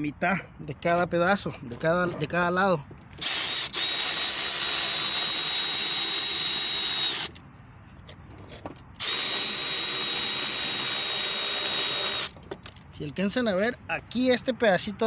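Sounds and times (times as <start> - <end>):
electric ratchet whirring: 3.1 - 7.4, 9.0 - 12.7.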